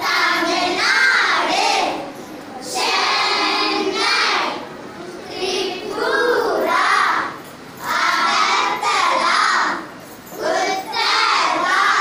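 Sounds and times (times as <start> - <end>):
girls chanting in unison: 0.0 - 4.6, 5.3 - 12.0.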